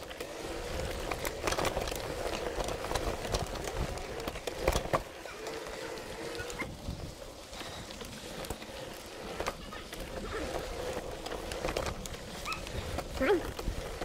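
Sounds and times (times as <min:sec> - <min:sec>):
bike rattling over bumps: 0:00.0 - 0:14.0
tyres crunching on gravel: 0:00.0 - 0:14.0
wind rumble on microphone: 0:06.0 - 0:07.9.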